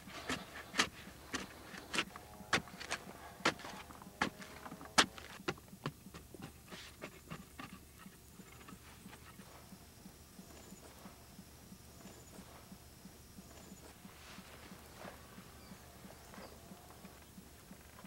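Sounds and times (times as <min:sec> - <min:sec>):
soft digging thuds: 0:00.0 - 0:07.8
tool knocking on soil and stones: 0:00.1 - 0:07.8.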